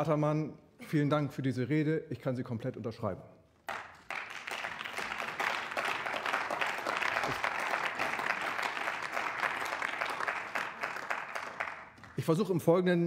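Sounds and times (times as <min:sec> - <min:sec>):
crowd applauding: 0:03.7 - 0:12.4.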